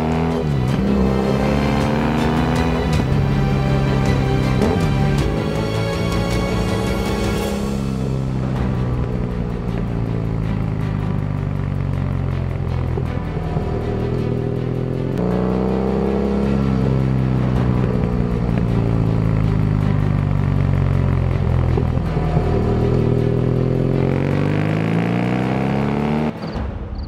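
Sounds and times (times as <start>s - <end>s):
motorcycle engine running: 0.0s - 27.0s.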